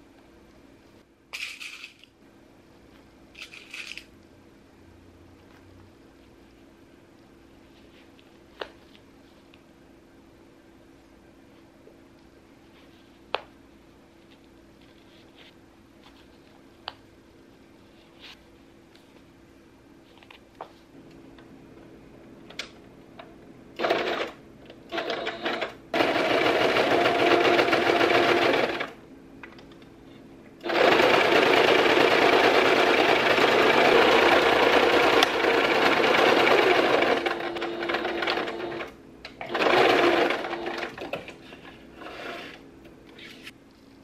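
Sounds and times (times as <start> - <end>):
sewing machine stitching: 23.8 - 29.0, 30.6 - 41.2.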